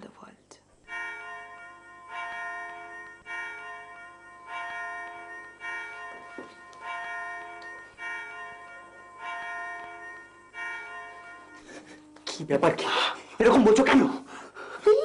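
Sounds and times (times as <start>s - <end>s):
bell chimes ringing: 0.8s - 14.1s.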